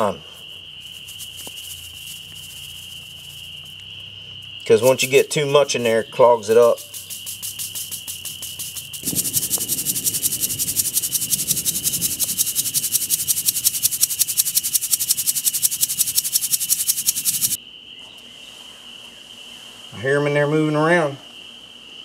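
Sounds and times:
high insect trill: 0.0s - 22.0s
beads rattling in plastic bottle: 0.8s - 3.6s, 6.6s - 17.6s.

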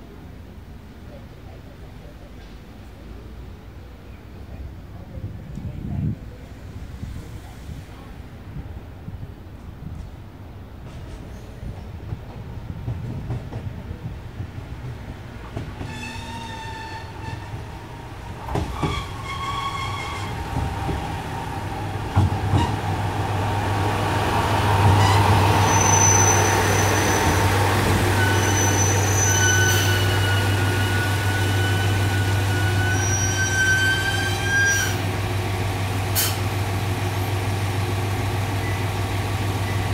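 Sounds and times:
high brake squeal: 15.8s - 17.6s, 18.7s - 20.4s, 25.0s - 27.4s, 28.0s - 35.0s.

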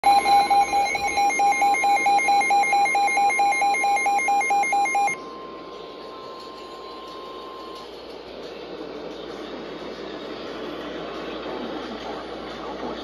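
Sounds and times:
steady warning alarm tone: 0.0s - 8.1s
rapid alarm beeping: 0.0s - 8.2s.

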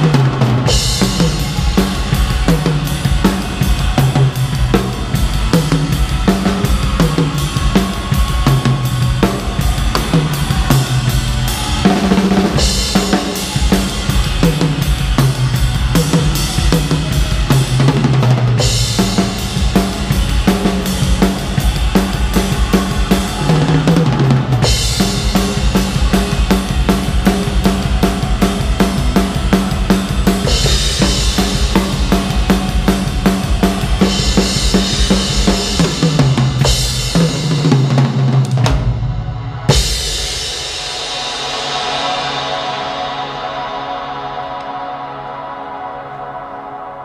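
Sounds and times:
drum kit played fast: 0.0s - 44.0s
cymbal crash: 38.9s - 45.3s.

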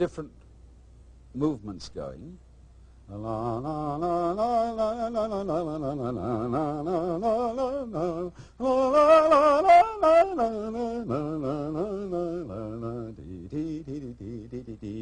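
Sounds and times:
man singing wordless melody: 3.1s - 15.0s.

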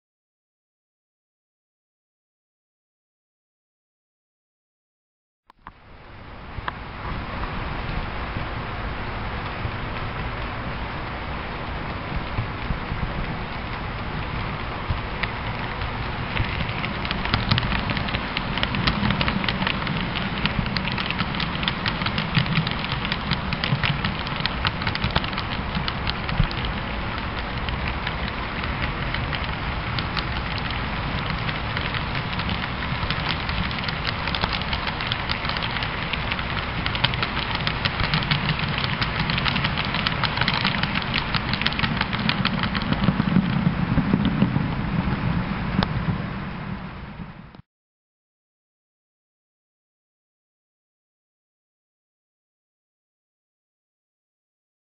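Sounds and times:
low locomotive hum: 5.6s - 47.6s
model train wheels clicking: 13.7s - 44.4s.

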